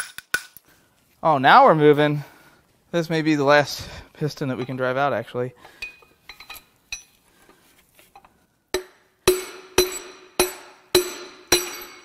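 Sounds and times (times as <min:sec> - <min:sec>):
hammer striking metal drift: 0:08.7 - 0:12.0.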